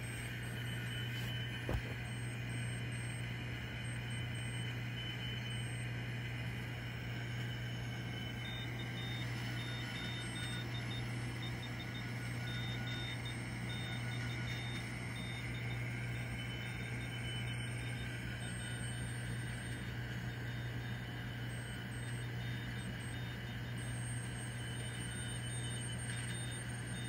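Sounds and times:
radio band noise and hiss: 0:00.0 - 0:03.2
faint morse code tones: 0:06.8 - 0:27.0.

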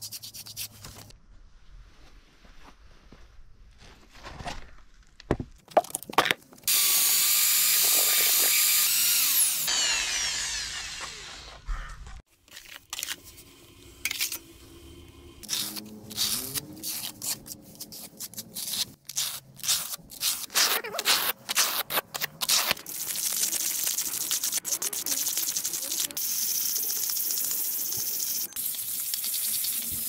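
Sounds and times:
electric drill mixing plaster: 0:06.7 - 0:11.7.

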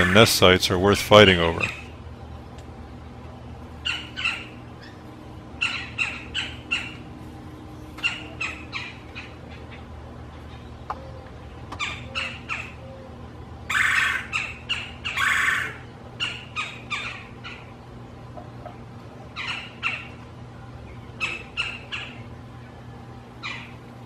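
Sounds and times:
woodpecker churr calls: 0:00.0 - 0:02.0, 0:03.8 - 0:17.9, 0:18.7 - 0:20.3, 0:20.9 - 0:22.8, 0:23.4 - 0:23.8.

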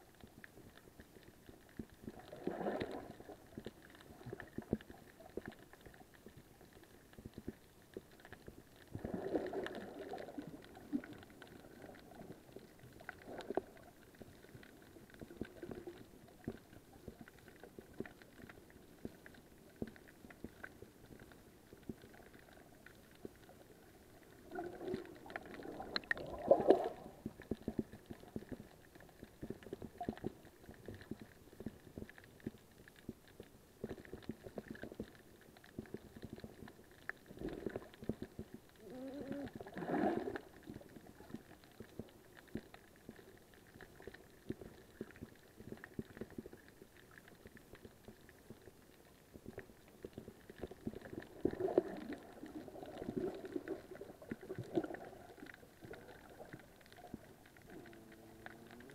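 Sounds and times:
gurgling water: 0:00.0 - 0:58.9
small clicks underwater: 0:00.0 - 0:58.9.

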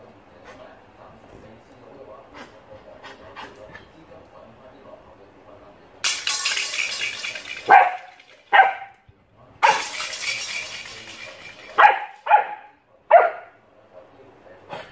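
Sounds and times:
puppy barking: 0:11.8 - 0:13.6.

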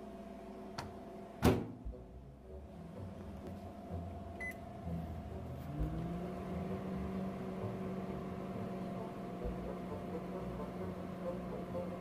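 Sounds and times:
microwave humming: 0:00.0 - 0:12.0
microwave keypad beep: 0:04.4 - 0:04.6.

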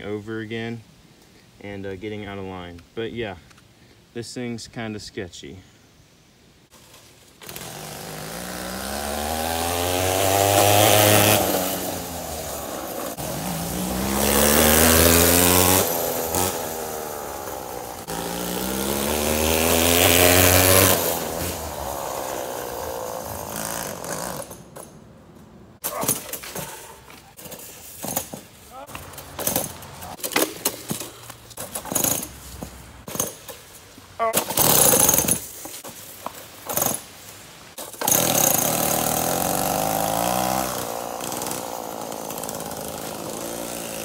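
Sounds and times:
two-stroke chainsaw engine revving: 0:07.4 - 0:24.6, 0:29.4 - 0:30.2, 0:31.8 - 0:32.3, 0:34.4 - 0:35.4, 0:36.7 - 0:37.0, 0:37.8 - 0:44.0.

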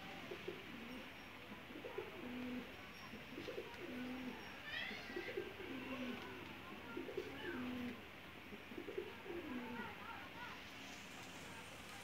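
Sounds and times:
pigeons cooing: 0:00.2 - 0:04.4, 0:05.0 - 0:06.3, 0:06.9 - 0:08.0, 0:08.6 - 0:09.9.

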